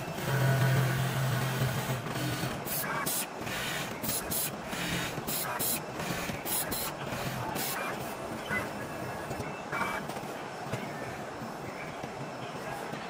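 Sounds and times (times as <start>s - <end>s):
sewing machine whirring: 0.0s - 7.9s.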